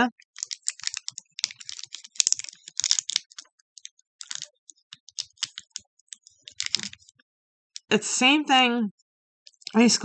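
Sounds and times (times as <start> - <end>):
plastic wrapper crinkling: 0.0 - 7.2, 9.5 - 9.8.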